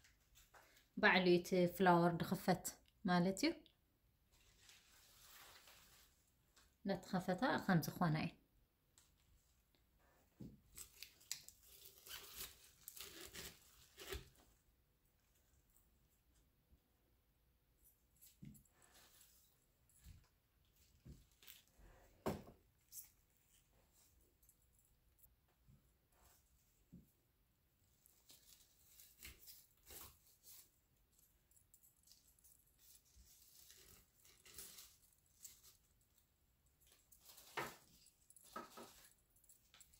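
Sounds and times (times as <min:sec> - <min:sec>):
flower stems rustling: 0:04.3 - 0:06.7, 0:10.7 - 0:14.4, 0:27.8 - 0:39.9.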